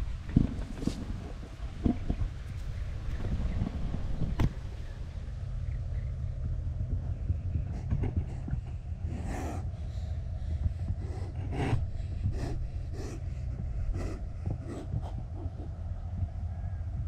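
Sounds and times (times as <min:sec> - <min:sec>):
steady low rumble: 0:00.0 - 0:17.0
man breathing hard: 0:09.1 - 0:15.2.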